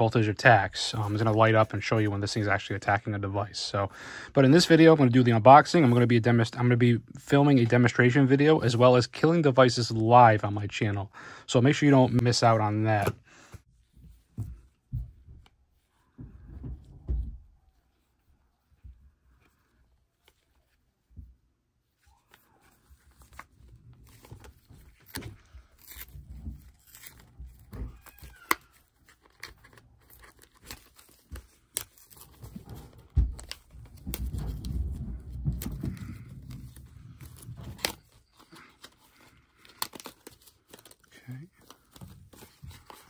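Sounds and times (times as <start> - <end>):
paper rustling and crinkling: 21.9 - 43.0
packaging being torn open: 24.9 - 32.5, 36.0 - 43.0.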